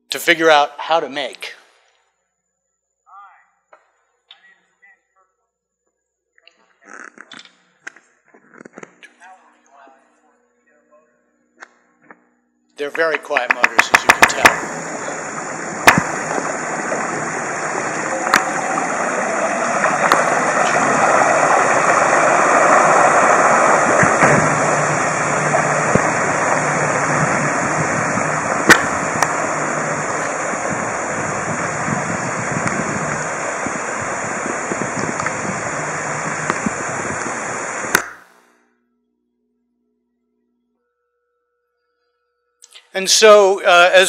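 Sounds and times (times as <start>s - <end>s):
faint electric motor hum: 12.8s - 38.2s
sharp clicks: 13.1s - 14.7s, 15.8s - 16.6s
water rushing off a boat hull: 13.2s - 38.1s.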